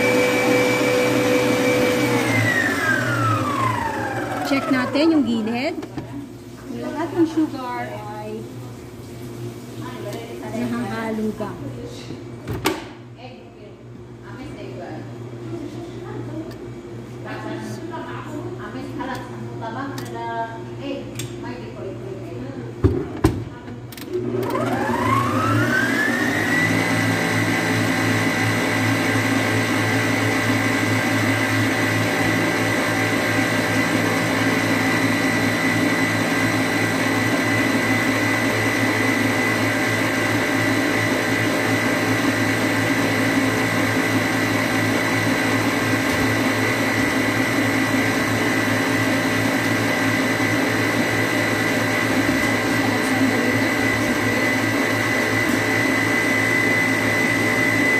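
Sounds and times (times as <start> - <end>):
stand mixer motor whine: 0.0 - 5.8, 24.1 - 57.9.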